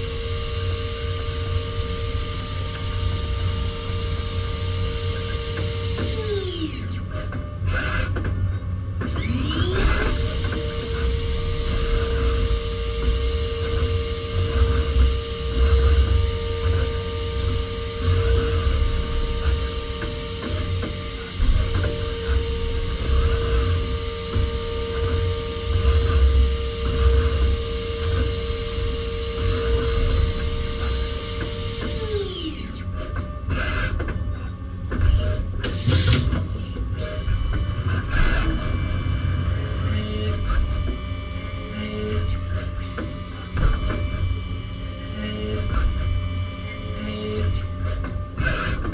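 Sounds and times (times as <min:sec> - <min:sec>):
milling machine spindle whine: 0:00.0 - 0:48.9
low cutting rumble: 0:35.8 - 0:41.6.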